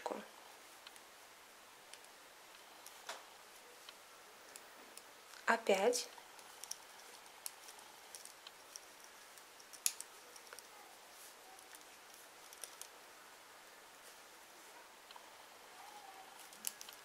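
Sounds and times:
knitting needles clicking: 0:06.1 - 0:10.8, 0:11.4 - 0:13.0, 0:16.4 - 0:17.0.

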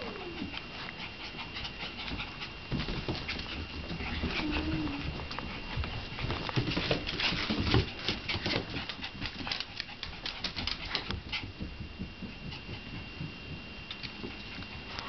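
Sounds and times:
puppy claws clicking on wood floor: 0:05.2 - 0:11.5.

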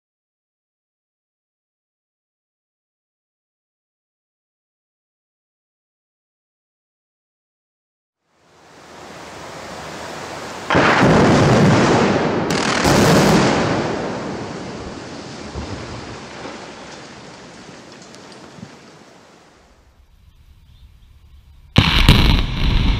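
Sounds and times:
loud explosive blast: 0:10.7 - 0:16.1, 0:21.8 - 0:22.9
concrete collapsing rumble: 0:10.7 - 0:18.7.

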